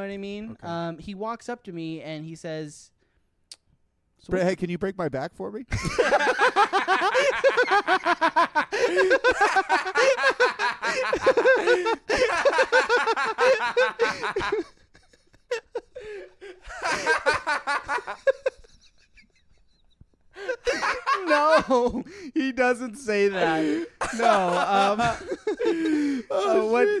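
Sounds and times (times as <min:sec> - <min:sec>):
men laughing: 0:05.7 - 0:22.3, 0:23.1 - 0:27.0.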